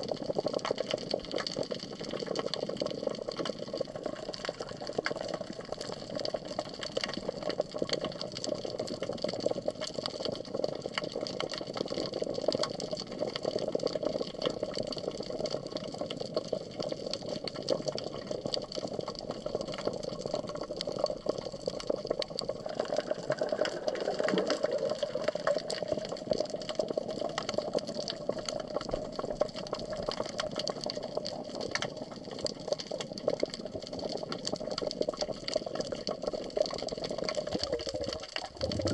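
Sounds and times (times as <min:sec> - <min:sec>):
small crackling clicks: 0:00.0 - 0:38.9
underwater rushing hum: 0:22.6 - 0:26.1, 0:37.5 - 0:38.9.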